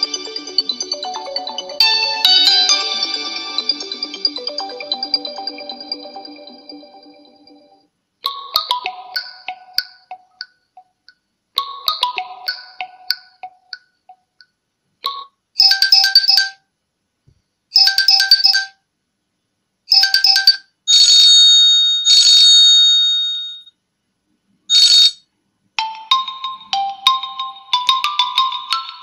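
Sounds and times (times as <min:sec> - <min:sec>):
phone ringtone chiming tune: 0:00.0 - 0:10.4, 0:15.6 - 0:16.6, 0:17.8 - 0:18.8, 0:19.9 - 0:23.7, 0:24.7 - 0:25.2, 0:25.8 - 0:29.0.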